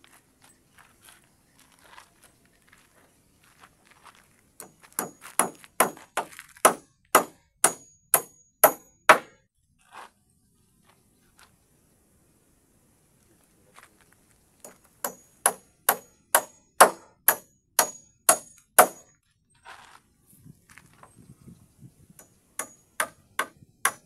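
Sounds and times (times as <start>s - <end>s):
hammer hitting nail into timber: 4.6s - 9.4s, 14.7s - 19.1s, 22.2s - 24.0s.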